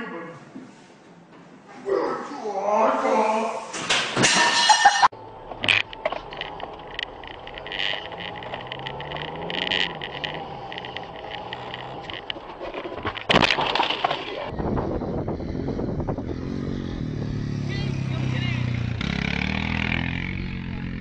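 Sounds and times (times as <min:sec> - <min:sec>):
knocks and rattles: 0:03.8 - 0:14.5
car engine running: 0:05.2 - 0:14.5
quad bike engine: 0:05.3 - 0:21.0
loud crunching: 0:05.6 - 0:14.5.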